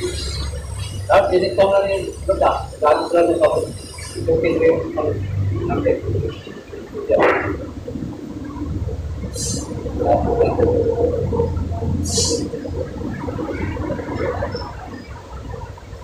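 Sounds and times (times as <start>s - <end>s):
water gurgling and sloshing: 0.0s - 16.0s
short hisses: 9.4s - 9.7s.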